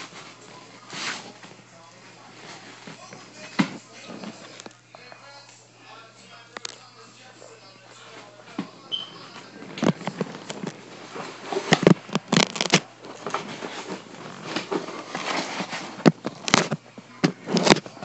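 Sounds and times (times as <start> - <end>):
phone handling scratches and knocks: 9.6 - 18.0.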